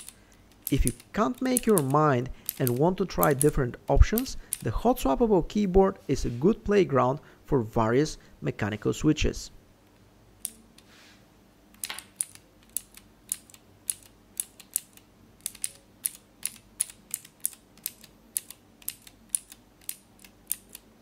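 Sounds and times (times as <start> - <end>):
mechanical keyboard key clicks: 0.0 - 4.6, 11.8 - 20.9.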